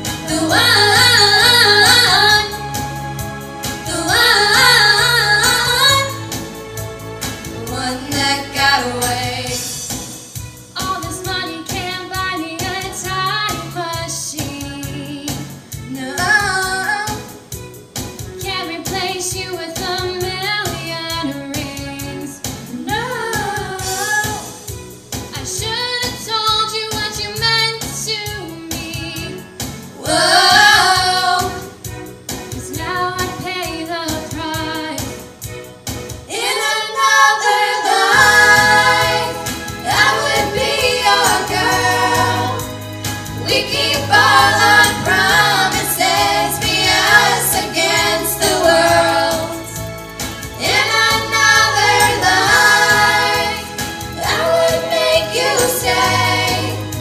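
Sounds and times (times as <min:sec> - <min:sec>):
girls singing in harmony: 0:00.0 - 0:02.6, 0:03.8 - 0:06.2, 0:07.6 - 0:09.6, 0:30.0 - 0:31.8, 0:36.3 - 0:49.8, 0:50.6 - 0:57.0
pop backing track with bass: 0:00.0 - 0:57.0.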